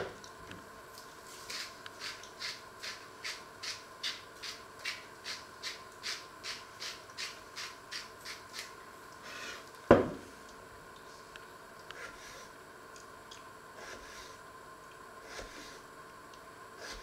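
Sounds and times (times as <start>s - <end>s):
spice grinder rasping: 1.5s - 9.6s
grinder knocking on wooden worktop: 9.9s - 10.2s.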